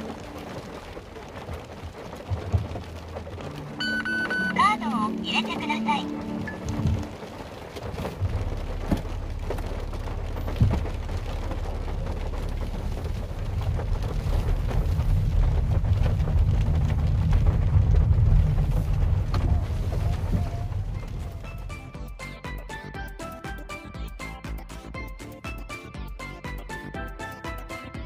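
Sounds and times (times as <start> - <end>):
deep rumble: 0.0 - 22.2
heavy rain on car roof: 0.0 - 23.8.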